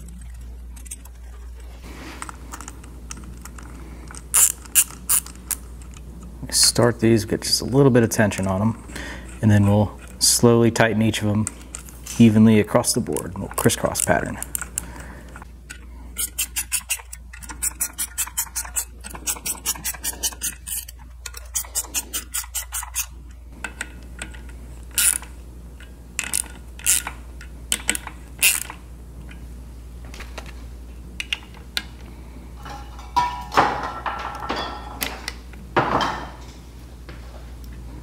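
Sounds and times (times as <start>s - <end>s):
ratchet wrench clicking: 4.1s - 5.6s, 16.2s - 23.1s, 24.9s - 25.3s, 26.2s - 27.1s, 27.7s - 28.8s.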